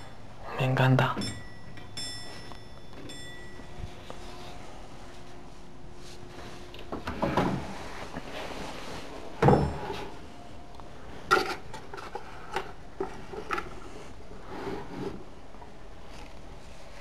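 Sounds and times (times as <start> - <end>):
rustling: 7.5 - 10.2.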